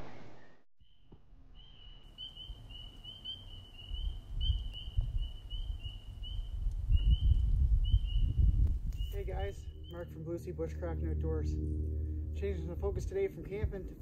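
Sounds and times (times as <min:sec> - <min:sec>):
wind on microphone: 0:03.9 - 0:09.9
steady high trill: 0:09.1 - 0:14.0.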